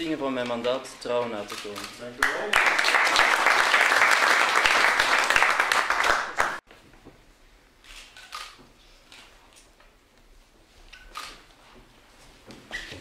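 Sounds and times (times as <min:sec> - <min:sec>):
audience applauding: 0:02.2 - 0:06.6.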